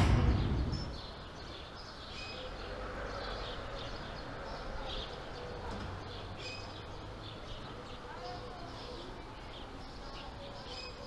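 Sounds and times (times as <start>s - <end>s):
low background rumble: 0.0s - 1.4s
small birds chirping: 0.0s - 11.0s.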